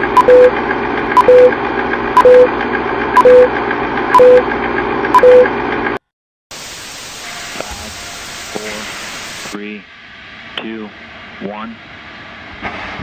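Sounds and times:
click and short beep: 2.2s - 2.5s, 4.2s - 4.4s, 5.2s - 5.5s.

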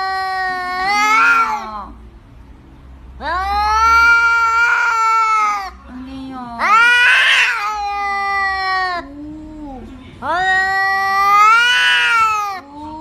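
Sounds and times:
cat meowing: 0.0s - 1.9s, 3.2s - 5.8s, 6.6s - 12.7s.

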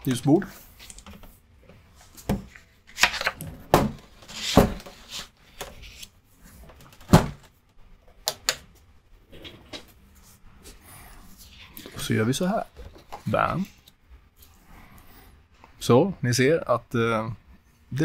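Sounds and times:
paper rustling: 4.0s - 6.1s
knocks and thuds: 7.0s - 7.5s.

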